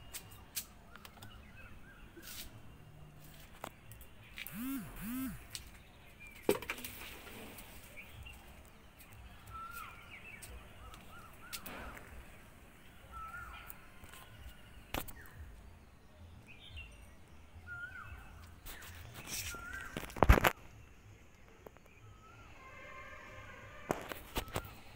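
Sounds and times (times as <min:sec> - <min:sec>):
sharp clicks: 0:03.9 - 0:05.7
bird calling: 0:04.3 - 0:05.8, 0:09.4 - 0:15.4.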